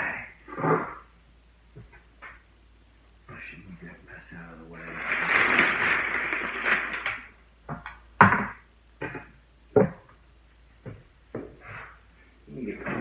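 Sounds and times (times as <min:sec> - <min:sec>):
paper crinkling: 0:04.8 - 0:07.3.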